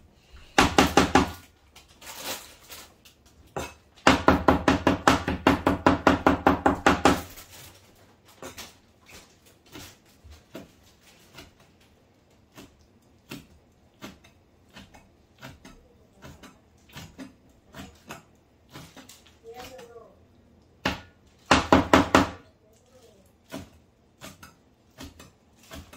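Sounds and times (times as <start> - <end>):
cleaver chopping on cutting board: 12.5 - 19.1, 20.8 - 22.4, 23.5 - 25.9.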